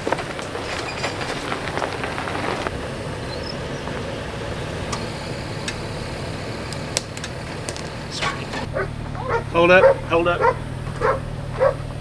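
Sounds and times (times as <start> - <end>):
engine running at low revs: 0.0 - 12.0
sharp clicks: 6.7 - 8.7.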